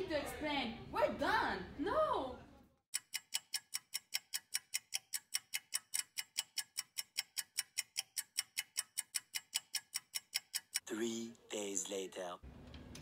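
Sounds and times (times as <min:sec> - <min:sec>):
fast clock ticking: 0:02.9 - 0:10.9.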